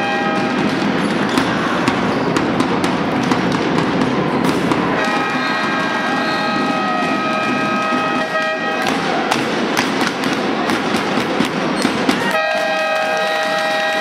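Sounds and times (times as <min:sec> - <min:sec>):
air horns blowing: 0:00.0 - 0:00.7, 0:05.0 - 0:09.2, 0:12.2 - 0:14.0
crowd cheering: 0:03.8 - 0:14.0
people clapping: 0:05.0 - 0:14.0.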